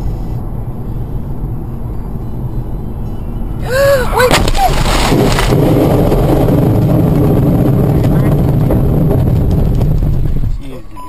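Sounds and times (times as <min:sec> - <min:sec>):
road rumble: 0:00.0 - 0:11.0
tire squealing: 0:00.0 - 0:11.0
vehicle crash: 0:04.2 - 0:10.9.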